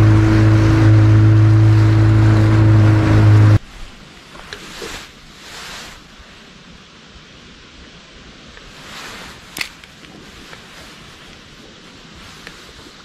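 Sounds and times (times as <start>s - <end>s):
boat motor running: 0.0s - 3.6s
faint wind: 0.0s - 13.0s
water noise from hull: 0.0s - 13.0s.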